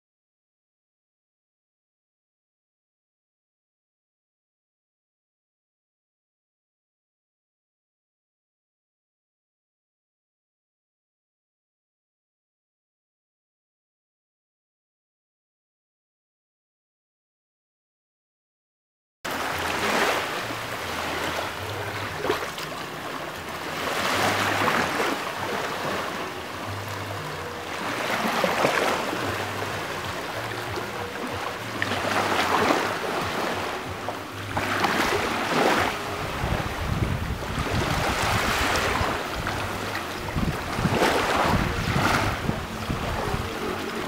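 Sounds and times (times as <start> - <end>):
small waves washing onto beach: 19.3 - 44.0
wind rumbling on microphone: 33.8 - 44.0.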